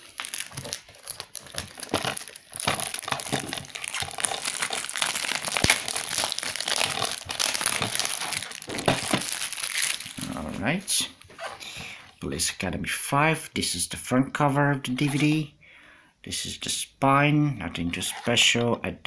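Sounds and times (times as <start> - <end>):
plastic wrap tearing and crinkling: 0.0 - 11.7.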